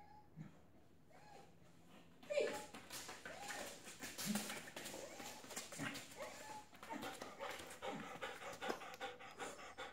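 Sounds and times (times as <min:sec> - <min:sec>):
dog panting: 0:05.1 - 0:09.9.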